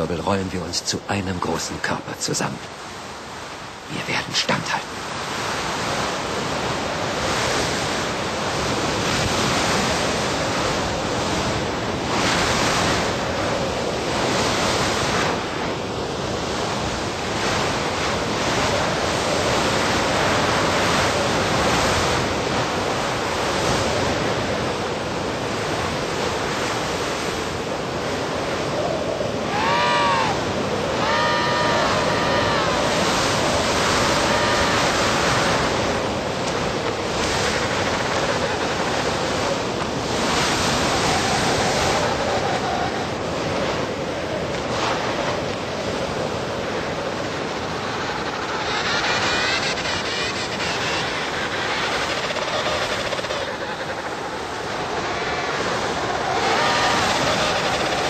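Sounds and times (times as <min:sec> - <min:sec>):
blizzard wind gusting: 0:00.0 - 0:58.0
penguins trilling calls: 0:29.5 - 0:35.8, 0:48.0 - 0:58.0.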